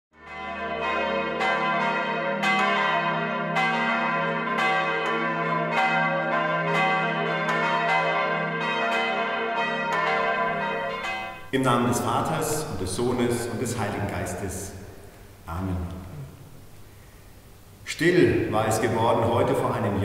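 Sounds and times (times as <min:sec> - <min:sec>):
church bells ringing: 0:00.2 - 0:14.3.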